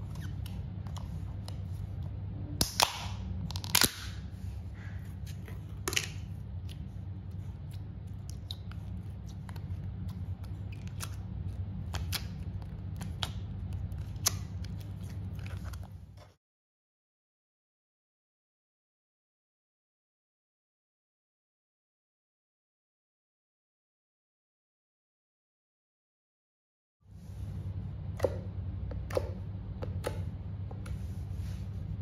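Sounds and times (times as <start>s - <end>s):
steady low hum: 0.0s - 16.4s, 27.1s - 32.0s.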